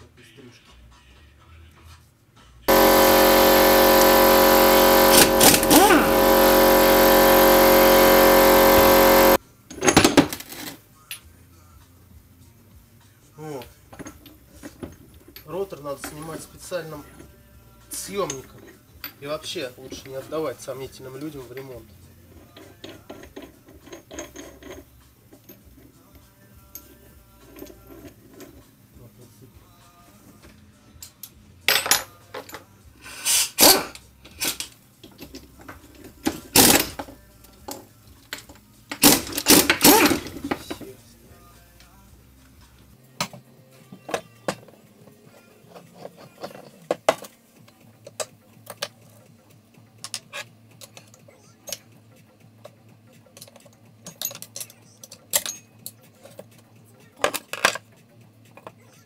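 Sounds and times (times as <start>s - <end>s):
metal tools clanking on engine: 53.4s - 56.4s.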